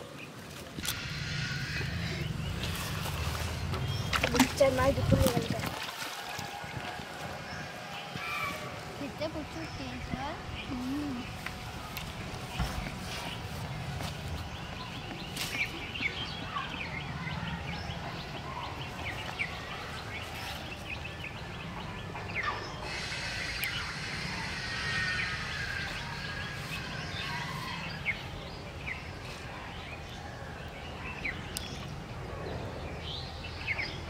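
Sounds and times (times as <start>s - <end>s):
steady low hum: 0.1s - 34.0s
high steady hiss: 22.8s - 27.9s.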